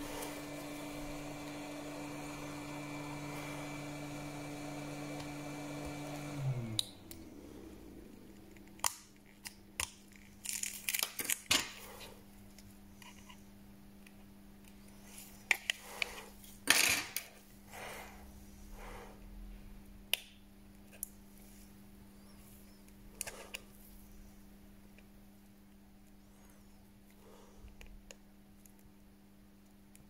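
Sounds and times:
small motor humming: 0.0s - 8.6s.

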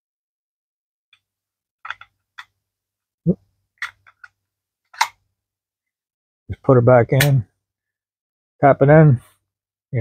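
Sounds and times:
pistol magazine metal clicks: 5.0s - 5.2s.

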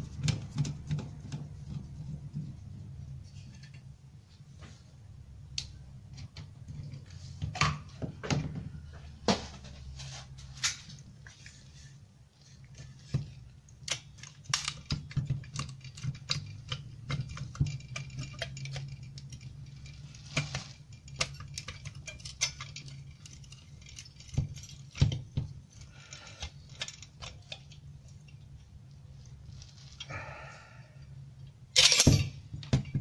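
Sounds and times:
metallic clicks and clinks: 13.8s - 25.1s, 31.7s - 33.0s.

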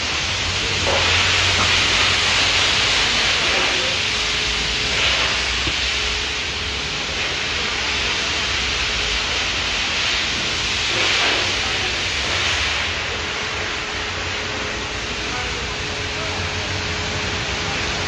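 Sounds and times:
car wash equipment hissing: 0.0s - 18.0s.

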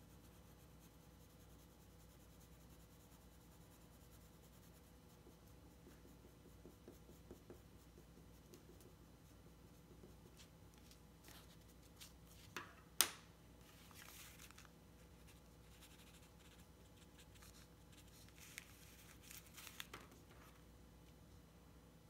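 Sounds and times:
paper rustle: 10.4s - 12.6s, 13.6s - 16.0s, 17.3s - 20.6s.

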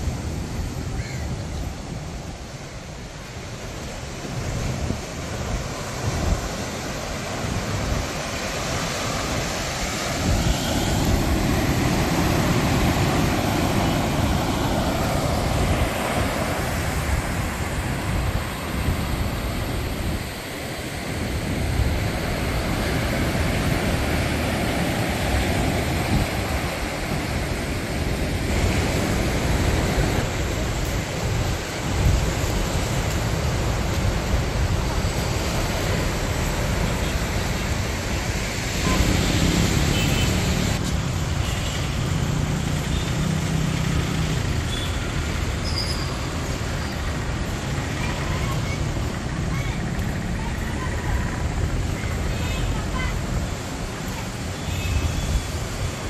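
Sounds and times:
surf breaking on beach: 3.6s - 40.8s.

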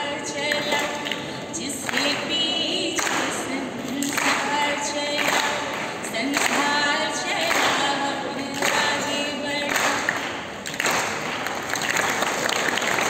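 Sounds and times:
children's choir singing: 0.0s - 10.2s
woman singing into a microphone: 0.0s - 10.3s.

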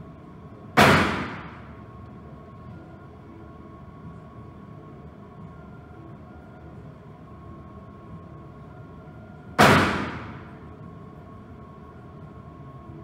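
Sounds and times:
low background hum: 0.0s - 13.0s
handgun shot echoing: 0.8s - 1.6s, 9.6s - 10.5s.

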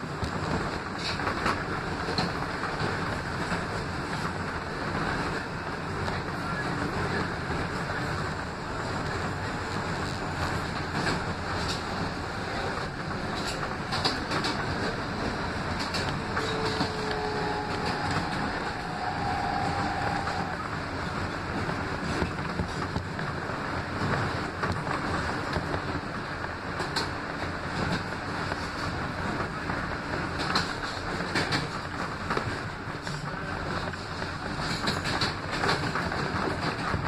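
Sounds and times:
sharp clicks from rails: 0.0s - 37.0s
wheels rumbling on rail: 0.0s - 37.0s
faint brief tones: 16.3s - 20.6s.

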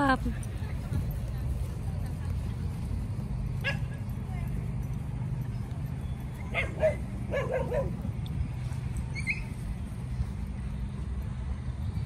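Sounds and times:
dogs yipping and barking: 3.5s - 9.8s
dog yelping: 6.4s - 8.0s.

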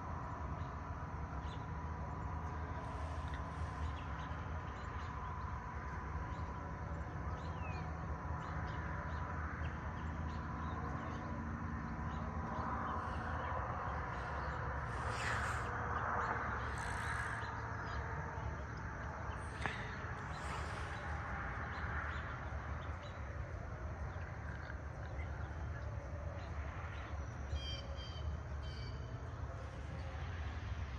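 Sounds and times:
steady low rumble: 0.0s - 30.9s
birds calling: 7.4s - 23.2s.

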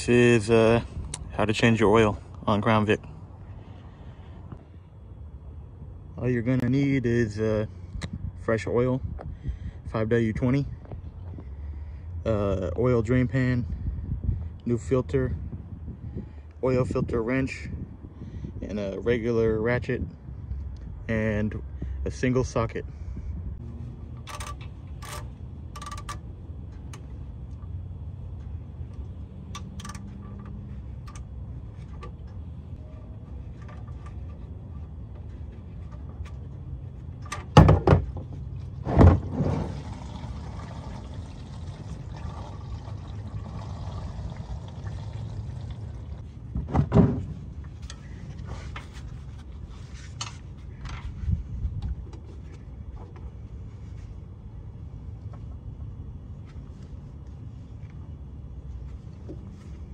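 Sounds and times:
ratchet clicking: 24.2s - 27.1s, 29.5s - 31.3s.

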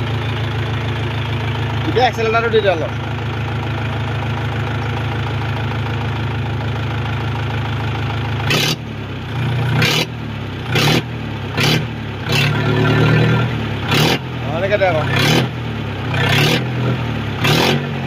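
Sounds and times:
tractor diesel engine idling: 0.0s - 18.0s
engine revving in throttle blips: 8.4s - 18.0s.

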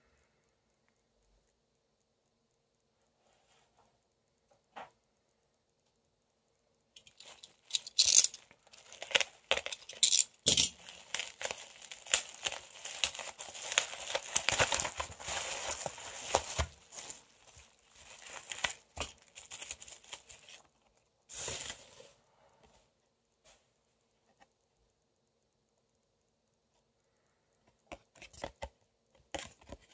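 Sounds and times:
bubble wrap rustling and crackling: 7.0s - 22.2s.

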